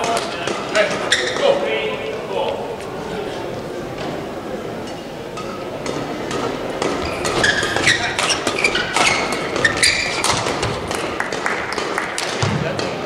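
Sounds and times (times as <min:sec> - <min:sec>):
shoes squeaking on court: 0:00.1 - 0:04.3, 0:05.3 - 0:12.6
rackets striking shuttlecock: 0:04.9 - 0:13.0.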